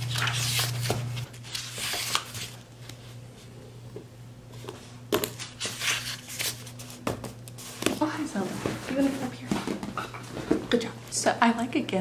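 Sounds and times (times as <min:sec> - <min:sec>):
book pages rustling: 0:00.0 - 0:03.1, 0:05.3 - 0:10.6.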